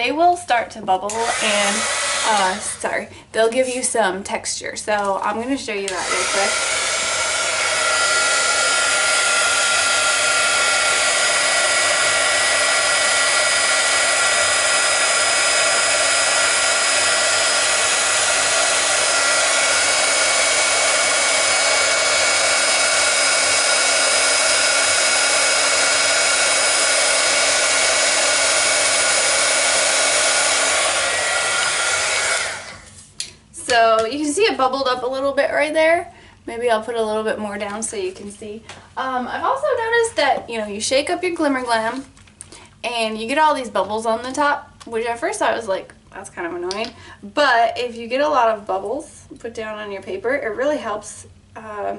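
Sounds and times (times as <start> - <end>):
heat gun whining air rush: 1.1 - 2.9, 5.8 - 33.0.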